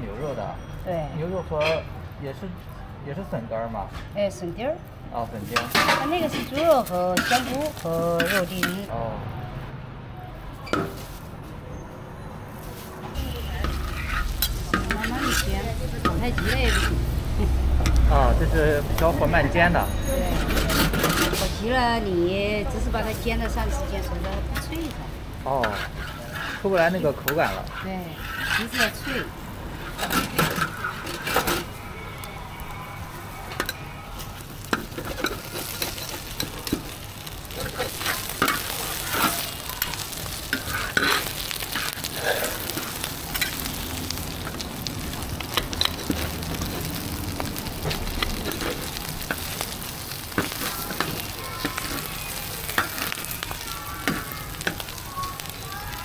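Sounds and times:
food sizzling on griddle: 0.8 - 9.0, 10.6 - 11.4, 12.5 - 56.0
metal spatula scraping pan: 5.5 - 8.9, 13.2 - 17.2, 19.8 - 21.7, 25.5 - 31.8, 34.6 - 43.7.

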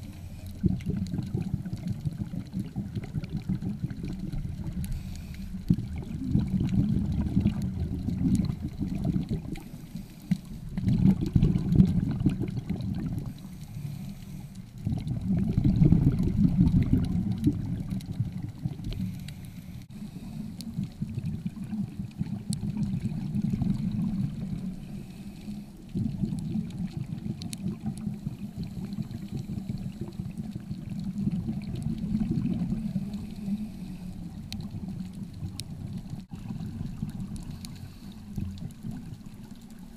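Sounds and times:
underwater exhaust bubbles: 0.0 - 39.9.

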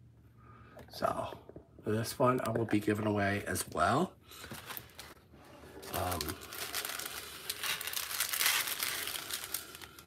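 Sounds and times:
plastic film crinkling: 4.4 - 10.0.

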